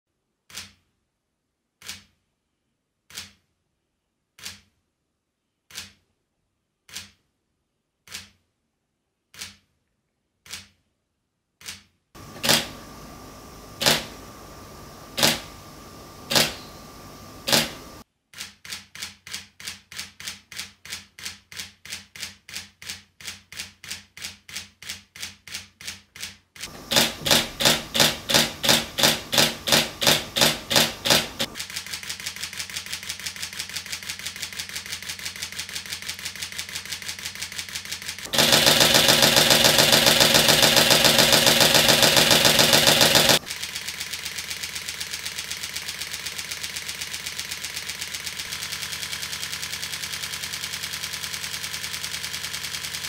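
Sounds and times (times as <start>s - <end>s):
faint hum: 12.2s - 18.0s
dslr mirror and shutter clack: 13.8s - 14.2s, 15.2s - 15.6s, 16.3s - 16.8s, 17.4s - 18.0s
mirrorless camera shutter clicking: 16.3s - 16.7s, 17.4s - 17.8s.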